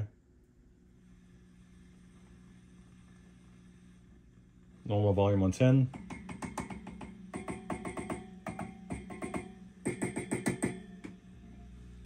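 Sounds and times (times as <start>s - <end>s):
ringing knocks from amp speaker: 5.9s - 11.2s.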